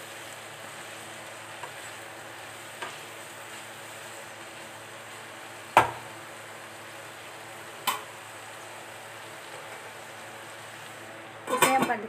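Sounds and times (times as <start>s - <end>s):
vegetables sizzling in a pan: 0.0s - 12.0s
wooden spatula knocking on pan: 5.8s - 6.0s.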